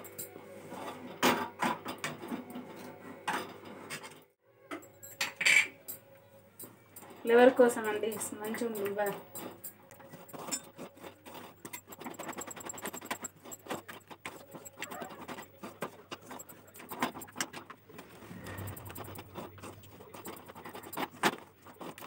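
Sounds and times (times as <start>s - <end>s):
wooden spatula scraping metal pan: 16.4s - 22.0s
faint low hum: 17.8s - 22.0s.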